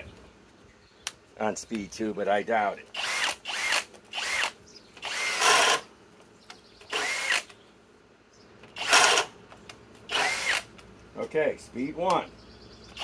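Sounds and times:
drill motor spinning up: 3.0 - 5.8, 6.9 - 7.5, 8.8 - 9.3, 10.1 - 10.7.

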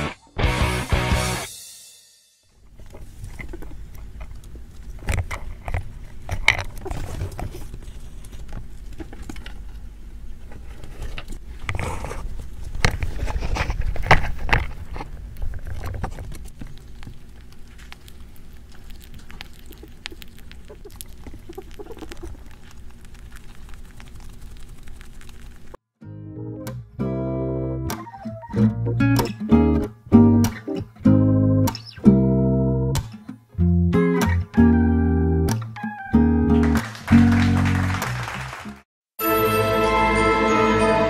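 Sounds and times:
crackly chewing and handling: 2.7 - 25.8
rat claws clicking and scratching: 12.8 - 25.8.

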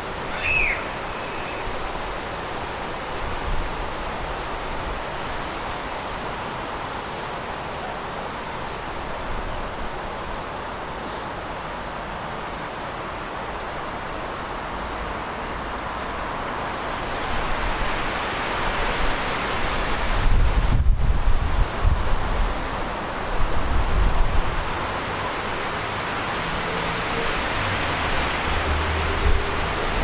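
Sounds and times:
river rushing: 0.0 - 30.0
wind buffeting microphone: 19.0 - 25.6.

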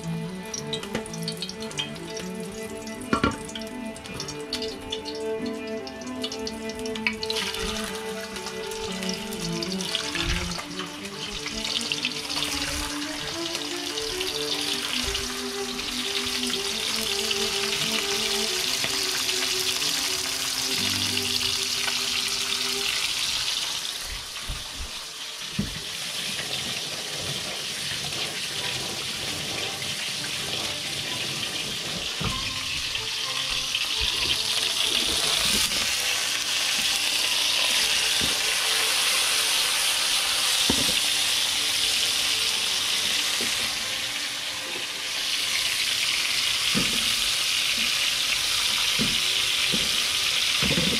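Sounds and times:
background music with held notes: 0.0 - 50.9
food sizzling in a frying pan: 0.0 - 50.9.

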